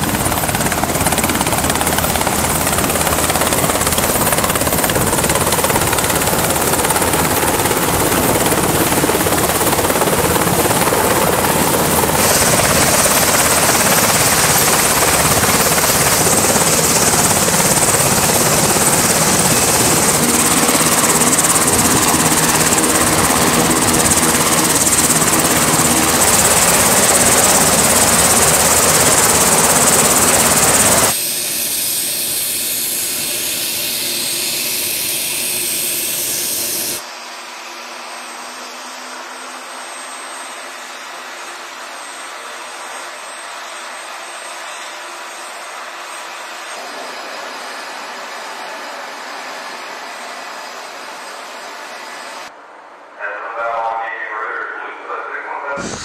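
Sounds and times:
helicopter rotor and turbine noise: 0.0 - 56.0
high hiss: 31.2 - 37.0, 55.7 - 56.0.

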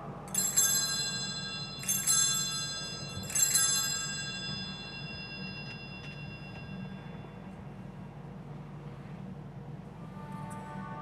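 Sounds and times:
altar bells ringing: 0.3 - 7.6.

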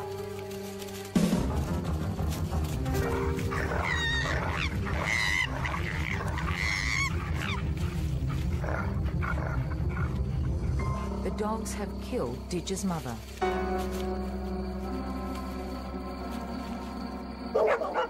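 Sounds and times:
dogs growling and snarling: 2.6 - 11.1
high wavering animal cries: 3.1 - 8.0.

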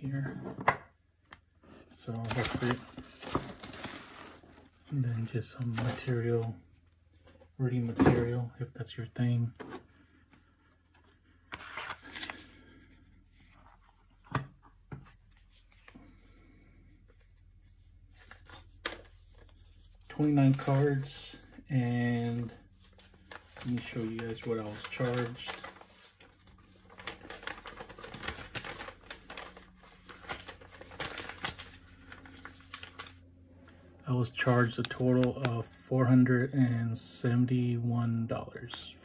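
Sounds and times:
paper rustling: 2.2 - 4.8, 10.8 - 14.3, 17.1 - 21.5, 22.2 - 33.2.

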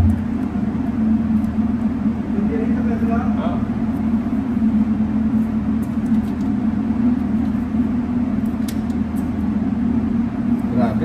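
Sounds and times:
machinery humming: 0.0 - 5.8.

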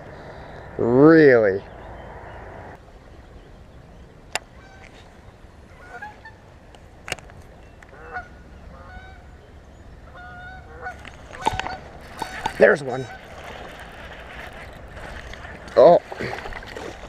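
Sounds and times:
geese honking: 7.9 - 9.2, 10.1 - 15.8.

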